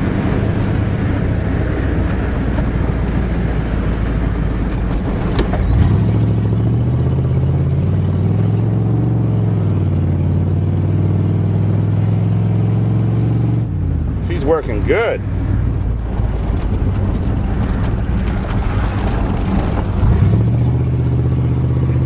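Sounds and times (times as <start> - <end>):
pickup truck engine revving: 0.0 - 22.0
road and body rattle: 0.0 - 22.0.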